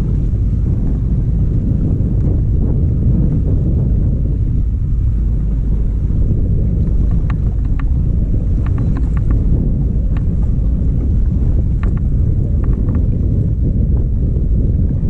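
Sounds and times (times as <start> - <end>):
wind buffeting microphone: 0.0 - 15.0
light clicks: 7.0 - 9.4, 11.7 - 13.2.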